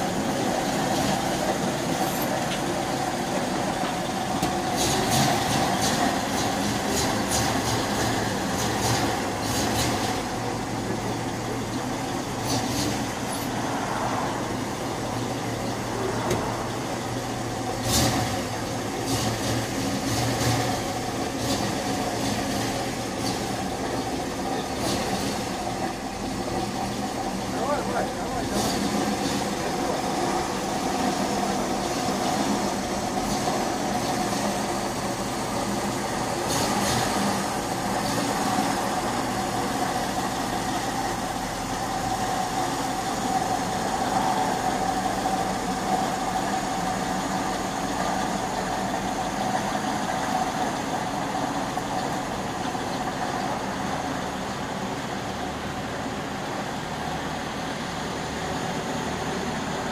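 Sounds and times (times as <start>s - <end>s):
truck engine idling: 0.0s - 59.9s.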